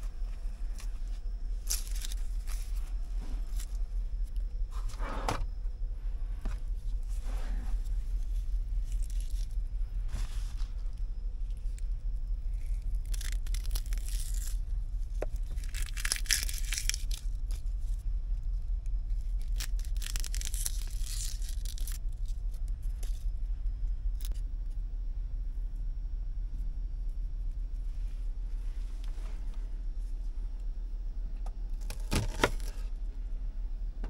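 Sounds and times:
steady low hum: 0.0 - 34.0
rustling and tearing: 0.1 - 4.4, 6.7 - 11.8, 12.5 - 18.0, 19.1 - 23.3.

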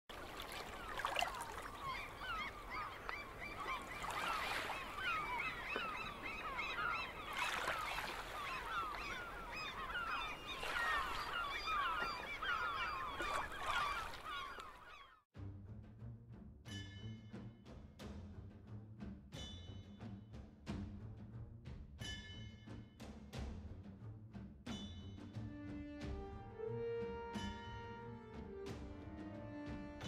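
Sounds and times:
flock of birds calling: 0.4 - 15.2.

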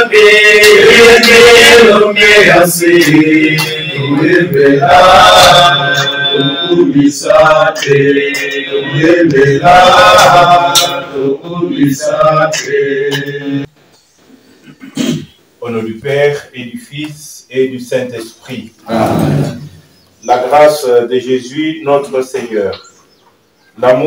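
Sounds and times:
men singing a hymn: 0.0 - 13.7
hand claps: 0.5 - 1.9, 2.8 - 4.7, 7.7 - 8.7, 10.1 - 11.1.

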